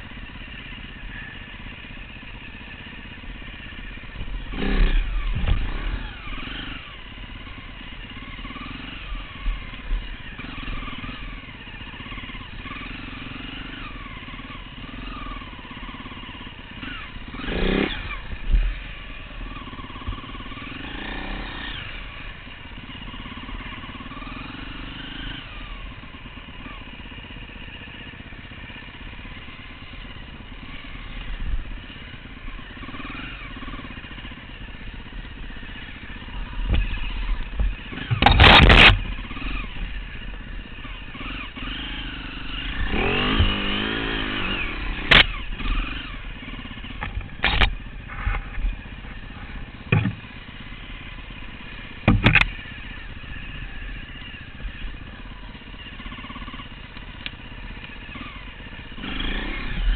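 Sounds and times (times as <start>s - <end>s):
dirt bike engine revving: 0.0s - 59.9s
loud knocks: 49.9s - 50.2s, 52.0s - 52.5s.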